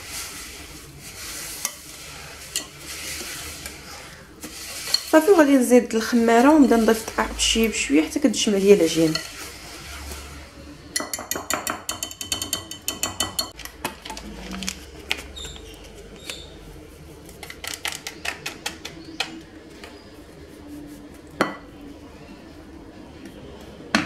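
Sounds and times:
whisk clicking against glass bowl: 0:11.0 - 0:13.6.

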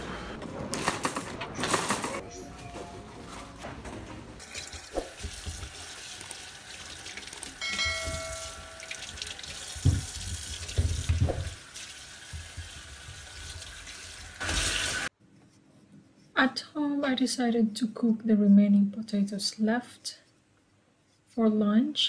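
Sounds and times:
tap water running into sink: 0:04.4 - 0:15.0
bell-like chime: 0:07.6 - 0:09.1.

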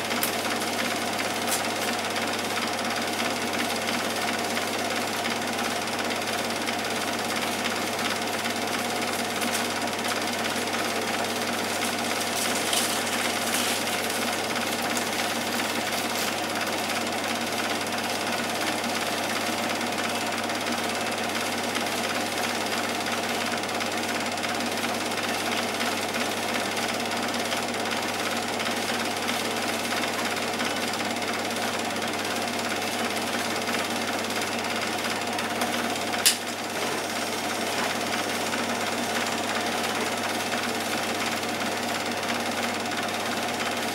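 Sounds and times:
film projector clattering: 0:00.0 - 0:43.9
projector hum: 0:06.8 - 0:23.6, 0:27.8 - 0:42.1.

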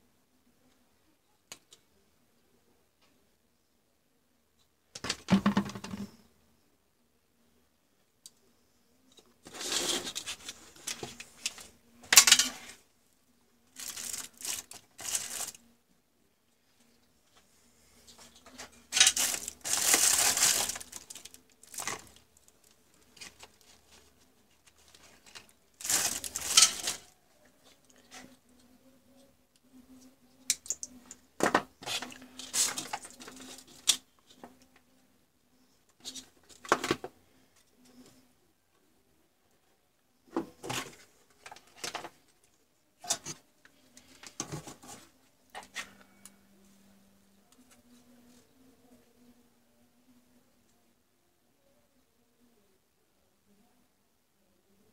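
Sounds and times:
packaging crinkling: 0:13.8 - 0:15.6, 0:19.0 - 0:23.6, 0:24.8 - 0:27.1.

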